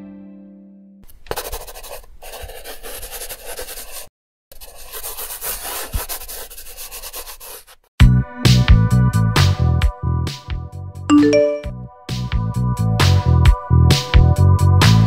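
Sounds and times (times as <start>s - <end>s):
pencil shading on paper: 1.1s - 7.8s.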